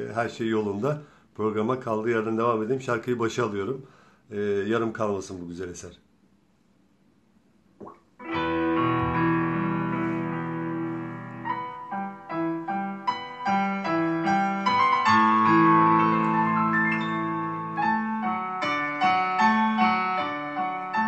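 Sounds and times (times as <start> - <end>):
keyboard melody over chords: 8.2 - 21.0.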